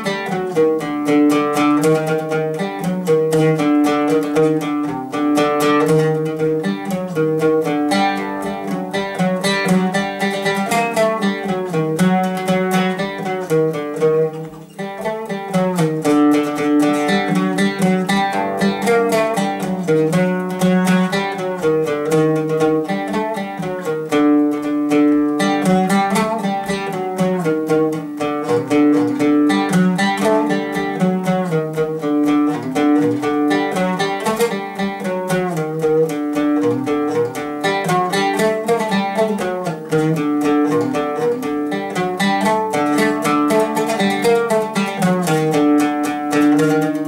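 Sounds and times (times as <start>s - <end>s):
oud plucked in quick melody: 0.0s - 47.0s.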